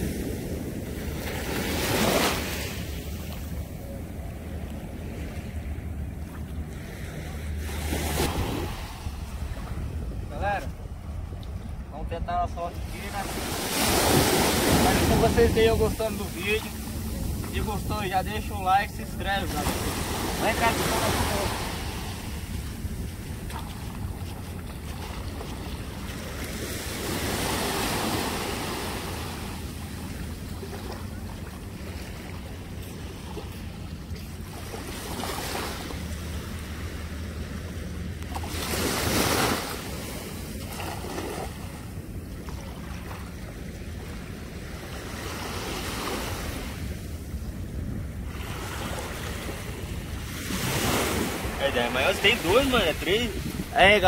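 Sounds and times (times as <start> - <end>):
surf washing on beach: 0.0 - 42.2, 42.8 - 54.0
wind buffeting microphone: 2.0 - 31.9, 46.8 - 54.0.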